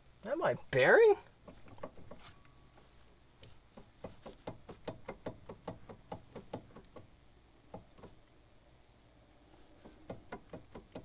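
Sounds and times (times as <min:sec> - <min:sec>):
metallic knocks of wheel hub: 0:03.8 - 0:07.1, 0:09.9 - 0:11.0.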